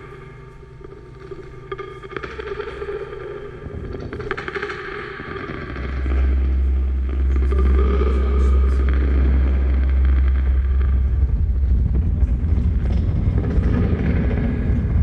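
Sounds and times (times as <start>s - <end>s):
deep bass drone: 0.0s - 15.0s.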